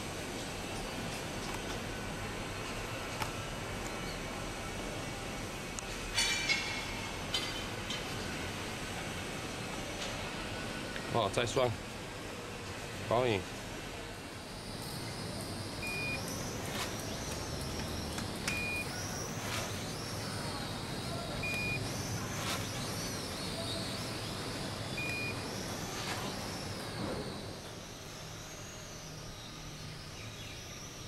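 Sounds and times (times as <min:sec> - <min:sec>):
drone propellers whining: 0:14.5 - 0:31.0
short high beeps: 0:15.8 - 0:17.2, 0:18.5 - 0:22.8, 0:24.9 - 0:26.8.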